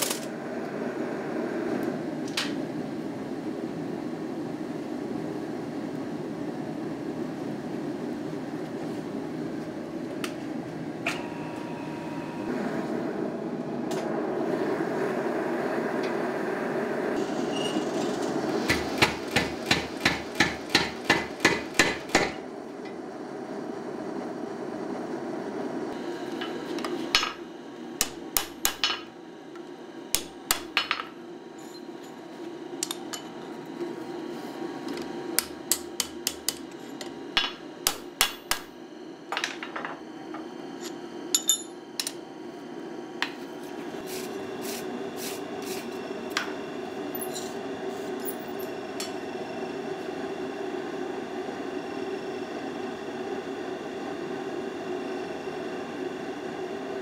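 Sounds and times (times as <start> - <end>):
steady drone: 11.1 - 18.7
power hammer striking steel: 18.7 - 22.4, 28.0 - 29.1, 35.4 - 36.7, 37.4 - 38.7.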